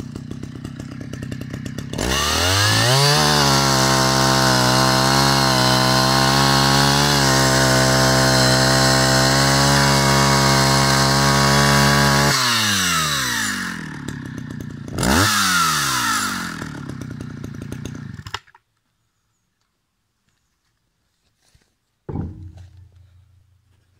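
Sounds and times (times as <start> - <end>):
chainsaw sawing through log: 0.0 - 18.5.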